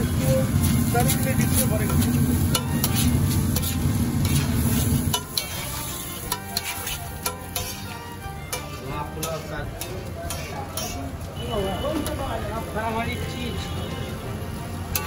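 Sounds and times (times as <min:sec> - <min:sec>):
light sizzle: 0:00.0 - 0:13.5, 0:14.1 - 0:15.0
metal spatula scraping iron plate: 0:00.2 - 0:11.1.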